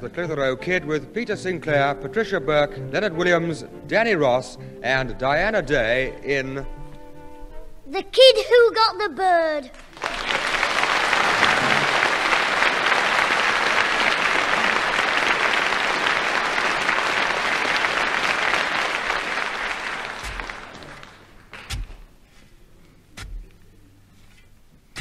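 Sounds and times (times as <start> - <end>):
audience applauding: 9.8 - 21.5
dull thuds: 23.2 - 23.6.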